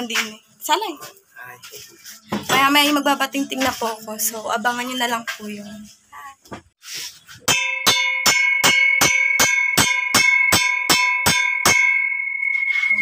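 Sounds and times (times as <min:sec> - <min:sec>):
metal pipe bell ringing: 0:07.5 - 0:13.0.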